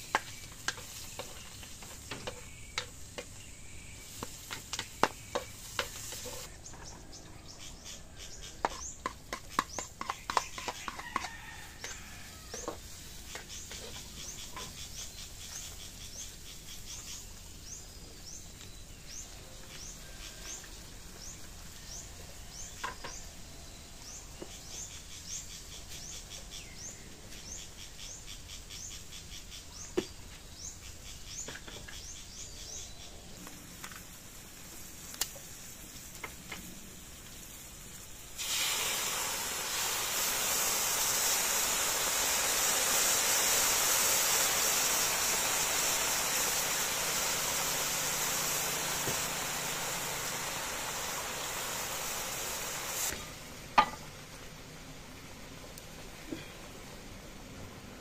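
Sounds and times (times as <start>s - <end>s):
food sizzling in a wok: 0.0s - 6.5s, 8.6s - 17.4s, 33.7s - 54.3s
bird chirping: 0.0s - 11.0s, 11.9s - 33.4s.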